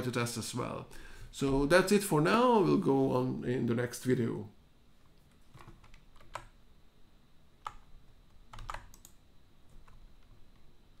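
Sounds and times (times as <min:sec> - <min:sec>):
computer keys clicking: 0:05.3 - 0:06.6, 0:07.6 - 0:10.7.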